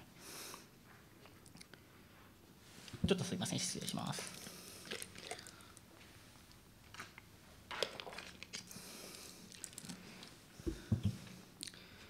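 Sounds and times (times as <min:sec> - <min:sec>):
soft low thumps: 0:10.7 - 0:11.2.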